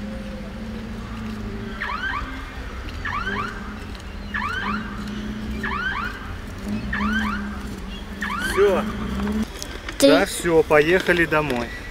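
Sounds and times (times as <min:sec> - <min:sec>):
car alarm chirping: 0:01.8 - 0:02.4, 0:03.0 - 0:09.2.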